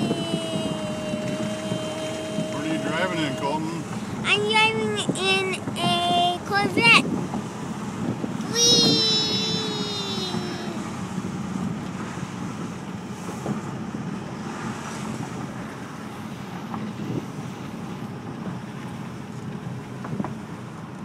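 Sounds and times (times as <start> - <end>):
wind noise: 0.0 - 18.6
car engine from inside cabin: 0.0 - 21.0.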